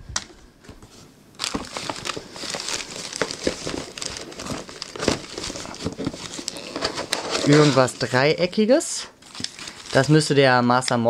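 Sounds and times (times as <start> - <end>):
plastic bag crinkling: 1.4 - 8.6, 9.2 - 10.3.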